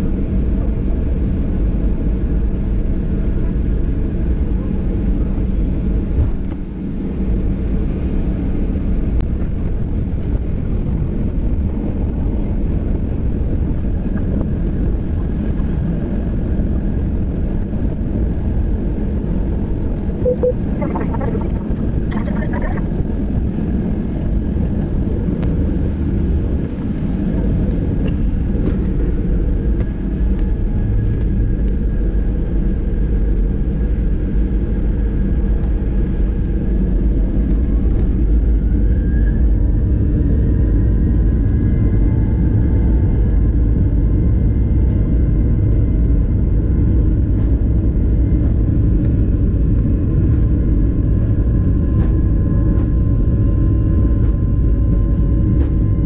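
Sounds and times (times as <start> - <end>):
aircraft rumble on ground: 0.0 - 56.0
jet engine whine rising: 20.1 - 23.2.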